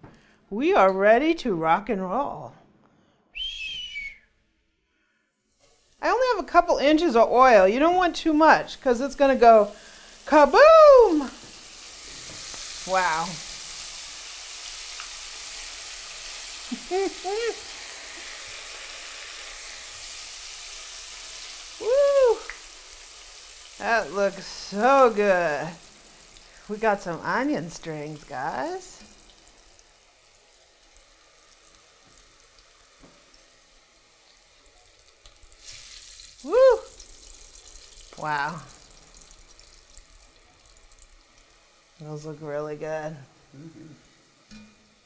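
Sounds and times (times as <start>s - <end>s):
onions deep-frying in hot oil: 5.5s - 45.0s.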